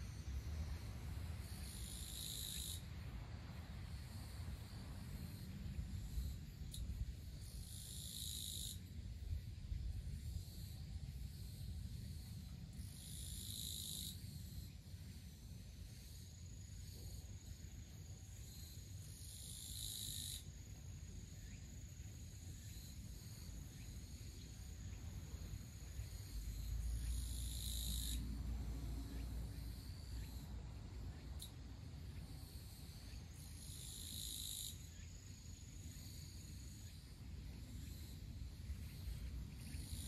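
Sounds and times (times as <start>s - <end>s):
faint high whine: 0.0s - 7.8s, 20.3s - 40.0s
insect buzzy call: 0.0s - 9.4s, 10.2s - 40.0s.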